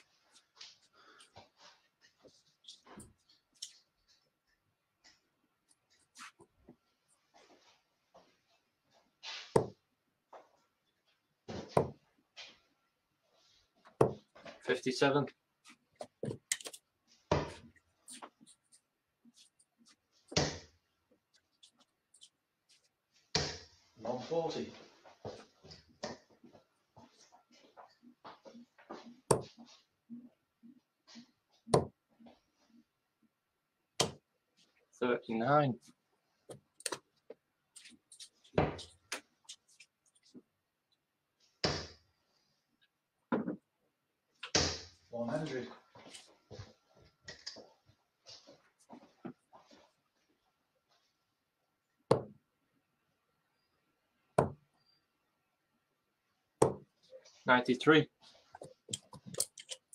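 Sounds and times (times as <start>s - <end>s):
darts thudding into dartboard: 52.1s - 52.4s.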